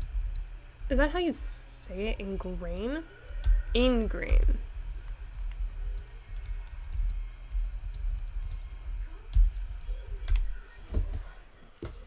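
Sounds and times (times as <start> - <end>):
keyboard typing: 2.0 - 10.6.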